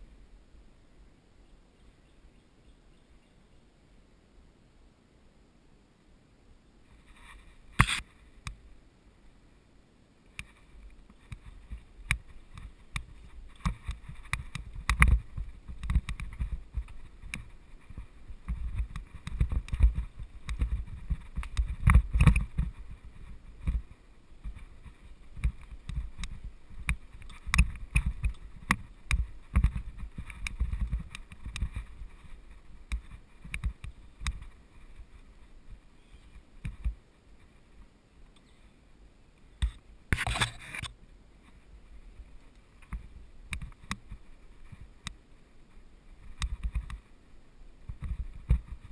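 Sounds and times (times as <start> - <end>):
bike rattling over bumps: 11.3 - 35.2.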